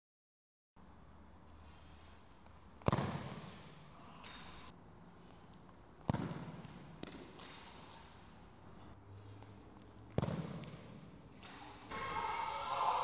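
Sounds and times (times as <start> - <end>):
football kicked hard with echo: 2.8 - 3.5, 6.0 - 7.2, 10.2 - 10.8.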